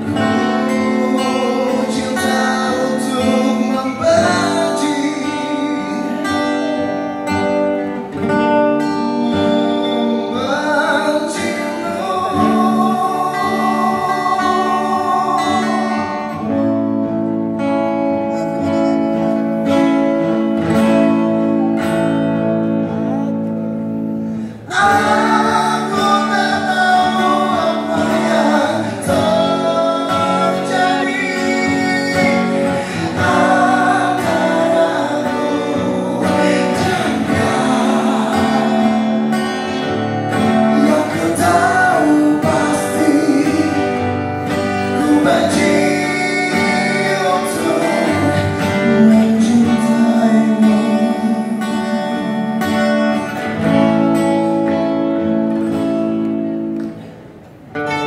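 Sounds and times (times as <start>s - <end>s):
man singing: 0.0s - 17.2s, 24.6s - 53.8s
acoustic guitar strumming: 0.0s - 58.0s.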